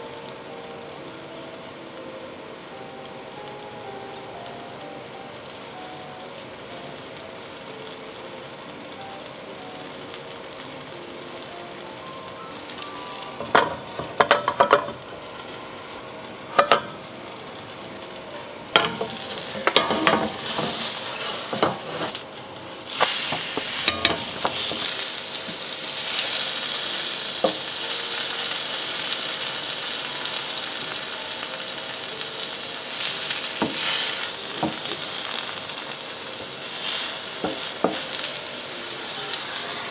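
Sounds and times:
pancake sizzling in a pan: 0.0s - 39.9s
wooden spatula scraping a pan: 19.0s - 22.2s.

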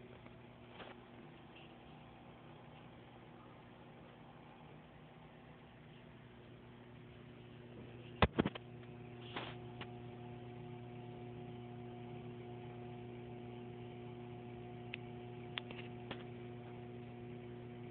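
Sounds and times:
aquarium equipment humming: 0.0s - 17.9s
sharp clicks and knocks: 8.2s - 8.7s.

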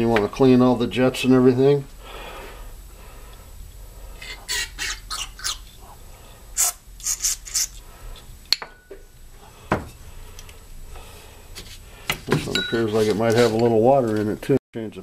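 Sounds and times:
aerosol can spraying: 6.6s - 7.8s.

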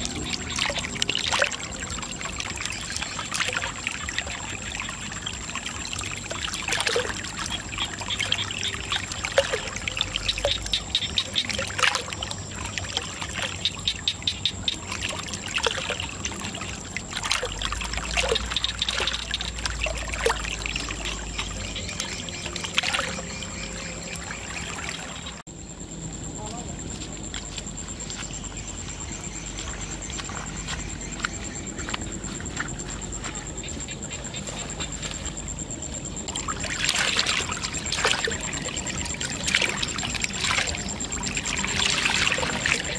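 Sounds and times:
water pouring into pool: 0.0s - 13.8s, 14.7s - 25.4s, 36.3s - 42.9s
water drips and splashes: 0.0s - 25.5s, 27.3s - 42.9s.

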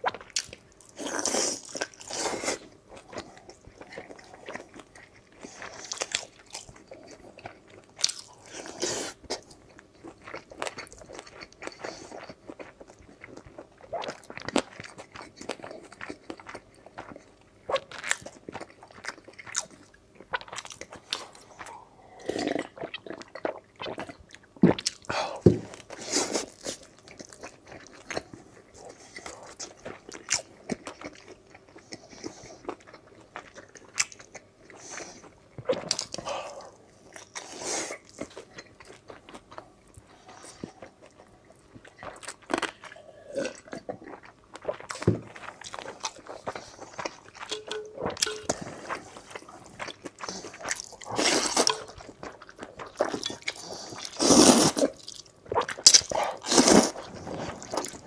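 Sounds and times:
slurping noodles: 53.5s - 55.0s, 56.1s - 58.0s.

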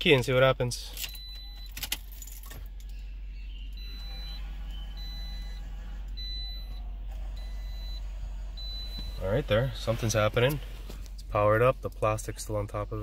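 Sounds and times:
car keys jingling: 0.0s - 3.0s
dashboard warning chime: 0.9s - 10.6s.

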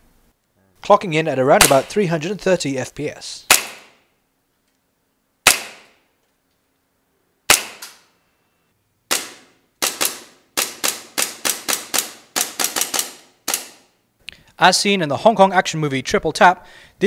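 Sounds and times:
airsoft pistol shots: 1.6s - 1.9s, 3.5s - 4.0s, 5.4s - 6.0s, 7.5s - 8.0s, 9.1s - 13.9s.

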